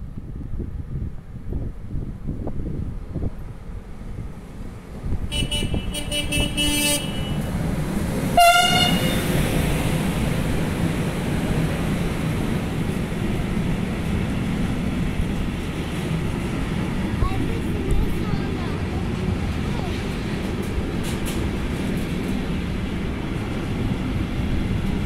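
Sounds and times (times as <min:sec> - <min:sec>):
freight wagons rumbling past: 0:04.3 - 0:25.0
locomotive horn: 0:05.3 - 0:07.5, 0:08.4 - 0:09.5.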